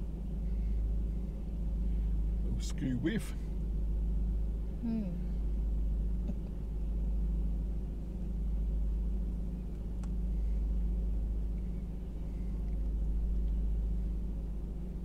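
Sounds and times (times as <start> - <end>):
low engine rumble: 0.0 - 15.0
faint tick: 9.7 - 10.2, 13.4 - 13.6.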